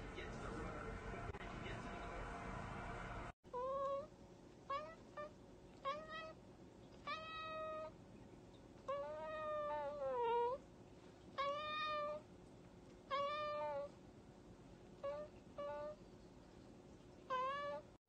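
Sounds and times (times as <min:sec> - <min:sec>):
cat meowing: 0:04.7 - 0:06.4, 0:07.0 - 0:07.9, 0:08.9 - 0:10.6, 0:11.4 - 0:12.2, 0:13.1 - 0:13.9, 0:15.0 - 0:16.0, 0:17.3 - 0:17.9.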